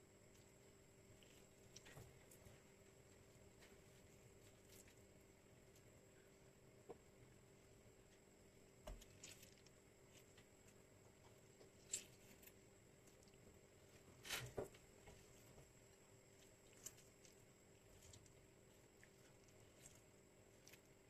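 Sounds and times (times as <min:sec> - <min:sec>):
hands squishing food: 0:08.8 - 0:21.0.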